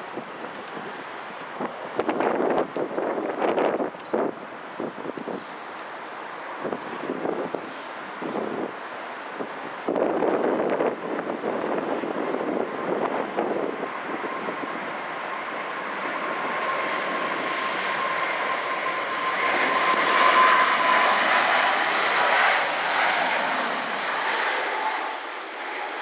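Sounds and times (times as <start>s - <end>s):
loud jet engine rush: 0.0s - 26.0s.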